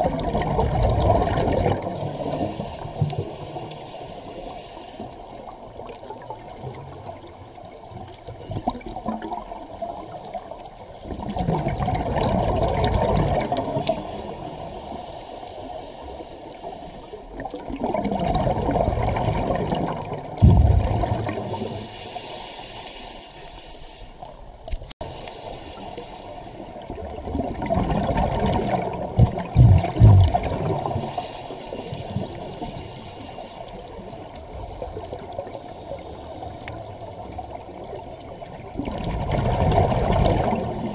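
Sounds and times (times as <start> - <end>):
underwater breath bubbling: 0.0 - 7.3, 8.2 - 24.4, 25.0 - 40.9
faint hiss: 2.0 - 5.5, 21.3 - 27.0.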